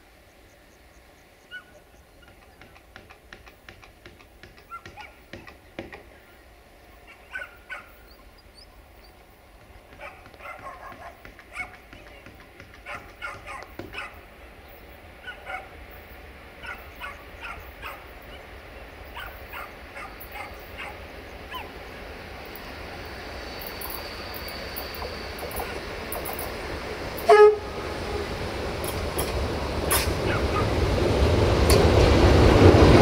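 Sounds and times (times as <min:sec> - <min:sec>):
dog barking: 0:01.5 - 0:01.8, 0:04.7 - 0:05.2, 0:07.1 - 0:08.1, 0:10.0 - 0:11.8, 0:12.8 - 0:14.2, 0:15.2 - 0:15.8, 0:16.6 - 0:18.4, 0:19.2 - 0:21.7, 0:30.3 - 0:30.8
diesel locomotive rumble: 0:05.5 - 0:33.0.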